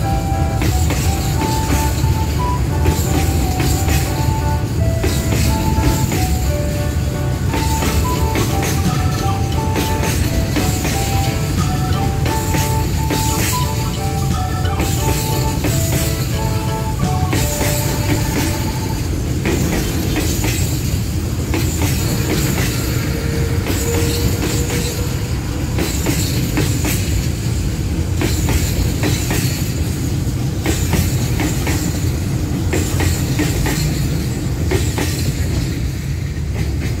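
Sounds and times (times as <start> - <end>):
freight train rumbling past: 0.0 - 37.0
wheels clacking over rail joints: 0.0 - 37.0.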